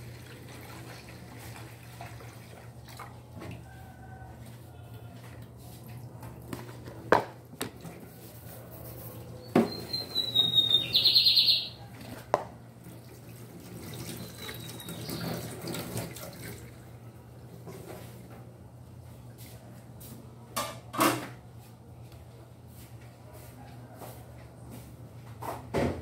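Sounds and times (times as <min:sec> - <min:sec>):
high chirping call with trill: 0:09.7 - 0:11.8.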